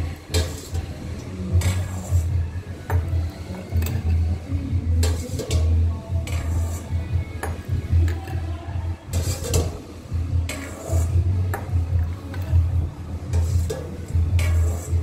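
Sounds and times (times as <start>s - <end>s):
ladle clinking against metal pot: 5.0s - 6.6s.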